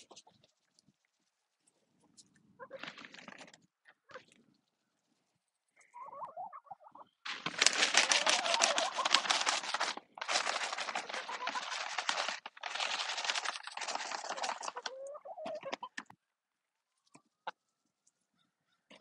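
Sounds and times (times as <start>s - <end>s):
hens clucking: 2.0s - 3.2s, 5.8s - 16.1s
dried larvae rattling in plastic pouch: 7.3s - 15.0s.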